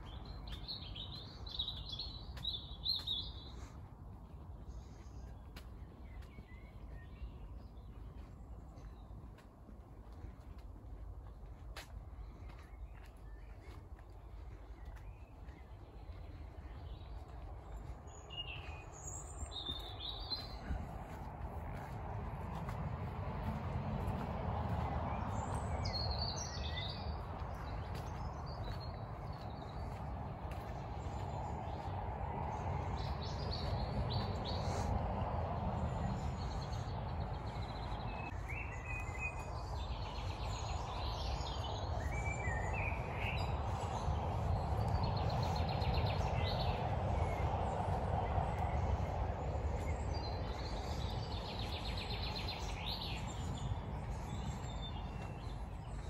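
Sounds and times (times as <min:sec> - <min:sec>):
small birds chirping and trilling: 0:24.1 - 0:56.0.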